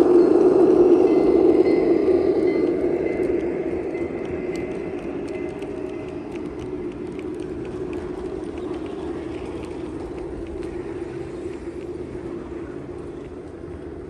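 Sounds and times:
model train cars rumbling: 0.0s - 14.0s
wheels clicking on rails: 0.0s - 14.0s.

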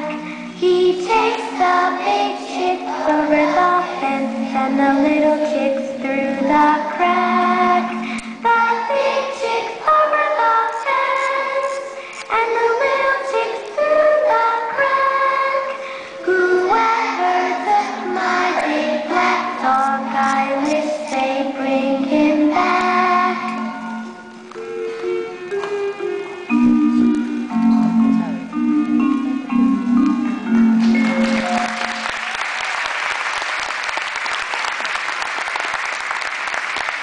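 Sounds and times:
girl singing into a microphone: 0.0s - 23.8s
musical accompaniment: 0.0s - 32.7s.

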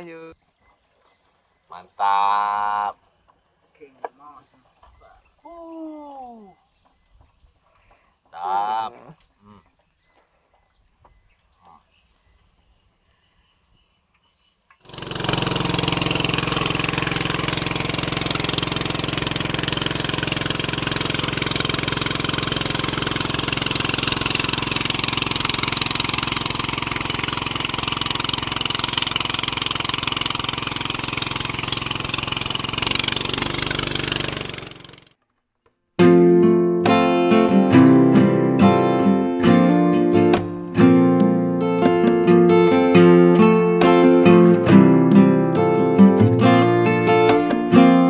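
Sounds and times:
boat engine running: 14.9s - 35.1s.

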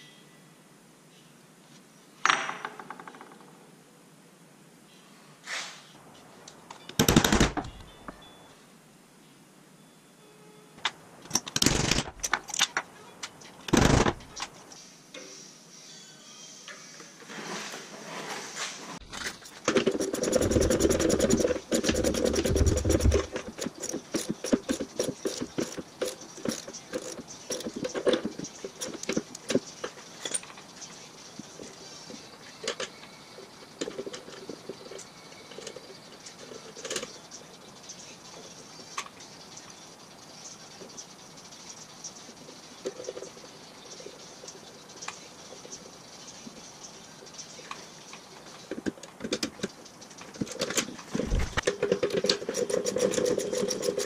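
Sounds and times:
socket ratchet clicking: 19.9s - 28.1s.

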